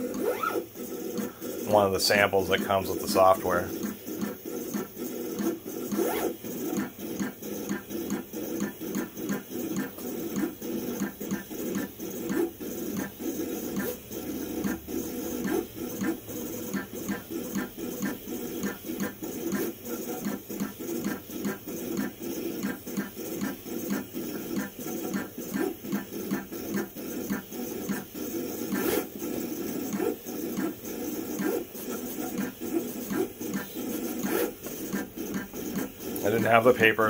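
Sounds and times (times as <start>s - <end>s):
vinyl cutter motors whirring: 0.0s - 37.0s.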